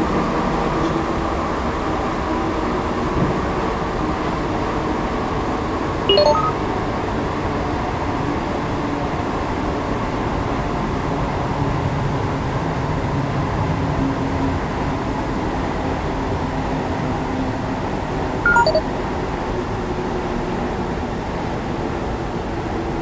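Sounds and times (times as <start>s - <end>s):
three-tone electronic chime: 6.1s - 6.6s, 18.5s - 18.8s.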